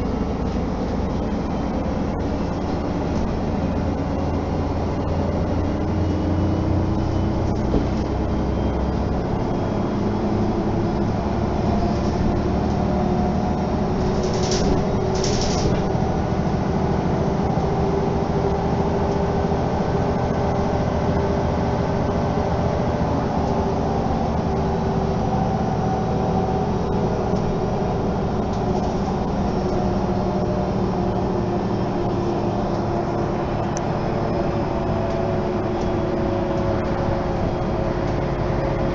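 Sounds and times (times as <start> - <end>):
bus engine and road noise: 0.0 - 38.9.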